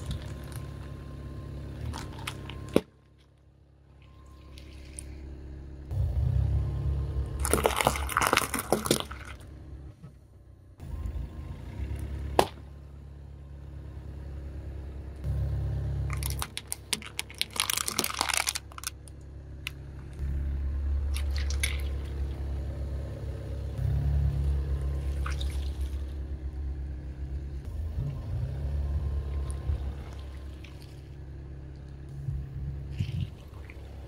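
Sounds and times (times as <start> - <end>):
crackling popping and squishing: 0.0 - 1.0, 1.8 - 5.2, 7.3 - 9.6, 16.1 - 20.3, 21.0 - 22.5
car engine rumble: 0.0 - 34.0
tyre crushing wet beads: 7.4 - 9.4, 16.1 - 19.0.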